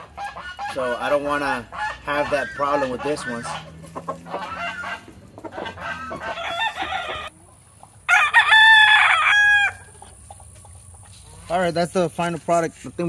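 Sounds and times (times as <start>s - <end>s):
chicken clucking: 0.0s - 8.3s, 9.8s - 11.8s
rooster crowing: 2.3s - 7.3s, 8.1s - 10.0s.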